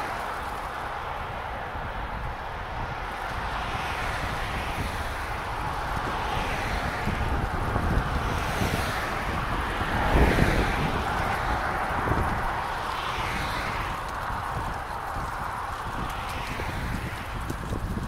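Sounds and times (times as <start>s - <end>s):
road noise: 0.0s - 18.0s
wind rushing over microphone: 0.0s - 18.0s.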